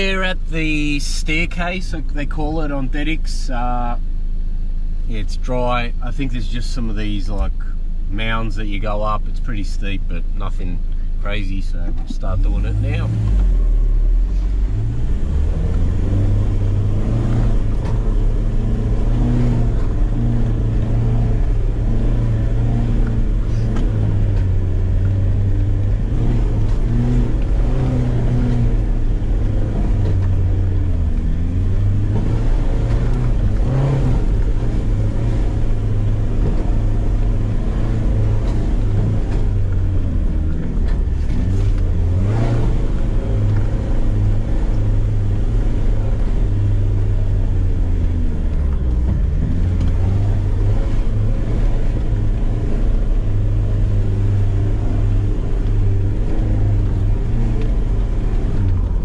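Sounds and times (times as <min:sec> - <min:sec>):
car engine running under load: 0:00.0 - 0:59.0.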